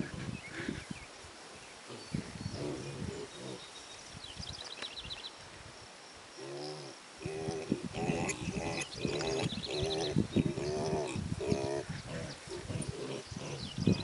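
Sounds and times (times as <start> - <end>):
piglets grunting: 6.4 - 13.7.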